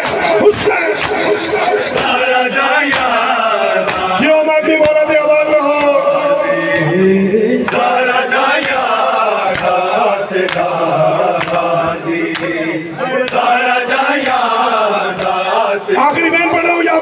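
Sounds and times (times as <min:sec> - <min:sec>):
hands slapping chests: 0:00.0 - 0:04.2, 0:04.8 - 0:05.0, 0:08.5 - 0:11.6, 0:12.2 - 0:12.6, 0:13.2 - 0:13.5
men chanting a lament: 0:00.0 - 0:17.0.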